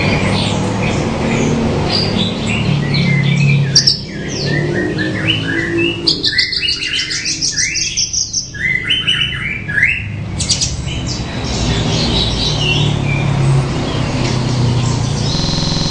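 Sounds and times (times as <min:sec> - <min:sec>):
bird singing chirping notes: 0:14.7 - 0:15.9.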